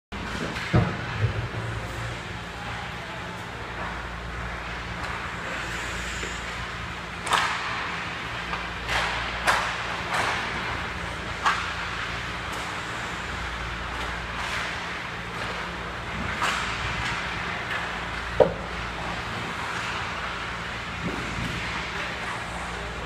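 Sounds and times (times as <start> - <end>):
hockey sticks and puck clacking: 0.2 - 1.2, 7.2 - 12.8, 13.9 - 20.1.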